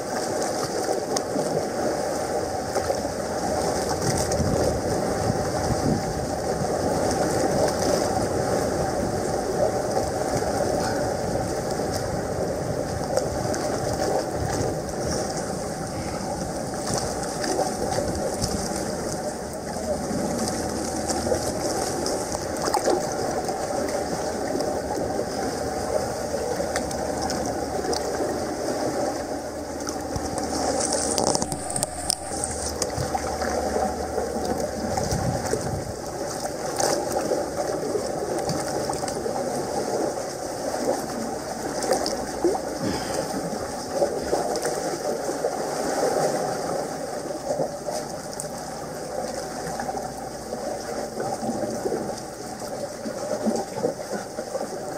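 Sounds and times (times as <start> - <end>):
sea water washing against rocks: 0.0 - 54.9.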